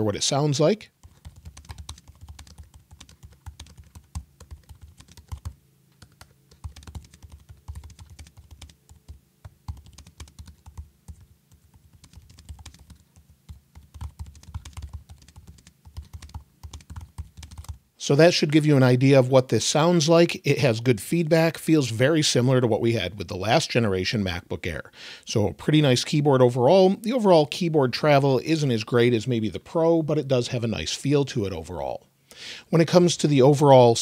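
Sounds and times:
keyboard typing clicks: 0:01.0 - 0:17.8.

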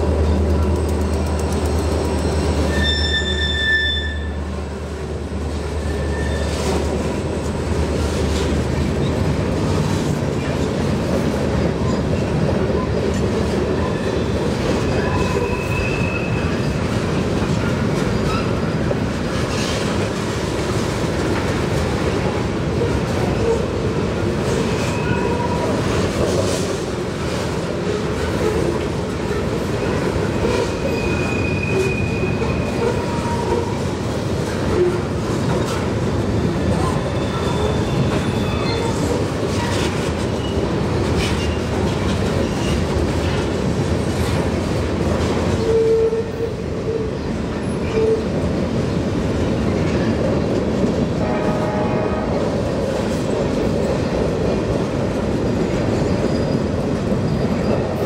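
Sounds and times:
clickety-clack over rail joints: 0:00.0 - 0:58.0
train wheels rumbling on rail: 0:00.0 - 0:58.0
high wheel squeals: 0:01.6 - 0:04.4, 0:05.8 - 0:06.6, 0:30.8 - 0:33.4, 0:36.8 - 0:39.1, 0:56.0 - 0:56.7.

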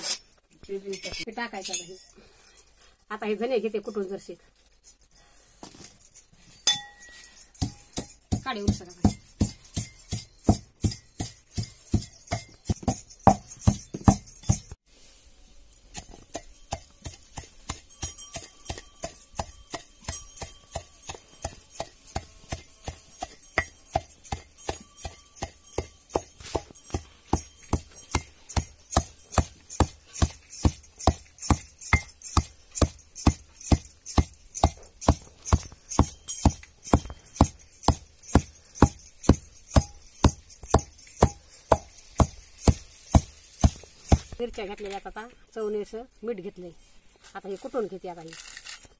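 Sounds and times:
glass bangles jingling: 0:00.0 - 0:14.8, 0:15.5 - 0:48.9
pestle pounding in steel pot: 0:07.6 - 0:14.7, 0:16.0 - 0:44.3.

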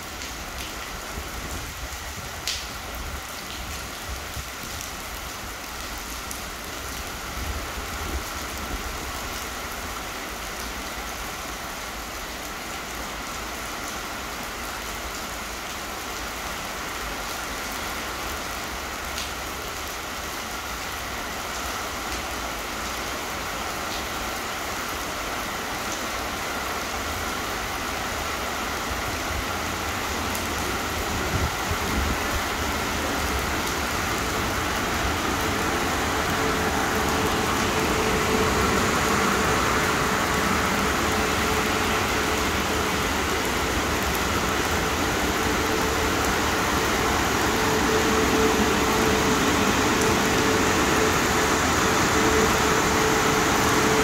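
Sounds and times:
heavy rain falling: 0:00.0 - 0:54.0
raindrop ticks: 0:02.4 - 0:02.7.

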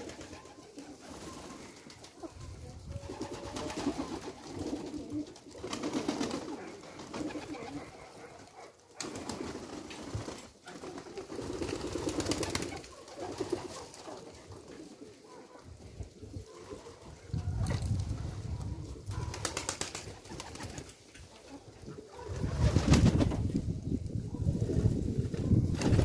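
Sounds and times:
pigeons cooing: 0:00.0 - 0:09.8, 0:10.6 - 0:23.2
birds clicking and rustling: 0:00.0 - 0:15.5.

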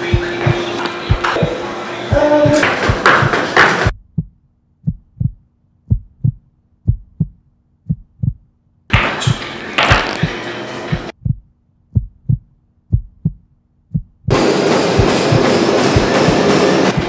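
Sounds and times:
heartbeat thumping: 0:00.0 - 0:08.5, 0:09.2 - 0:17.0
backing music with a beat: 0:14.3 - 0:17.0.

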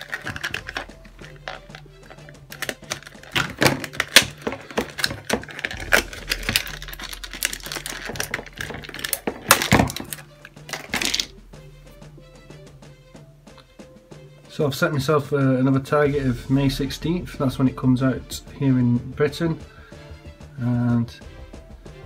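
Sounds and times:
plastic packaging crackling: 0:00.0 - 0:11.3.

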